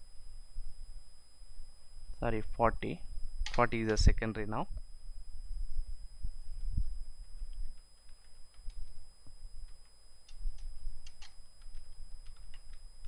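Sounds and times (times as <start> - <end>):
faint high whine: 0.0 - 13.0
keyboard typing: 7.4 - 9.0, 9.6 - 12.9.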